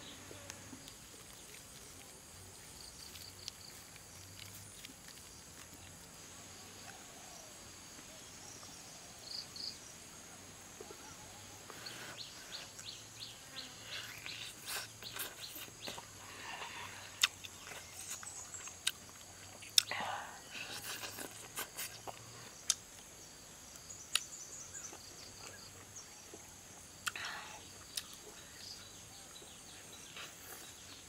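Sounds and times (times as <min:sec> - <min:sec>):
faint insects: 0:00.0 - 0:31.0
person chewing with mouth smacks: 0:03.0 - 0:06.1, 0:13.9 - 0:16.3, 0:17.0 - 0:22.8, 0:27.8 - 0:28.4.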